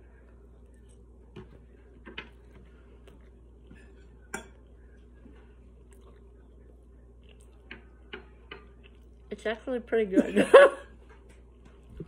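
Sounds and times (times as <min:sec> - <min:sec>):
person chewing quietly: 0:00.0 - 0:09.3.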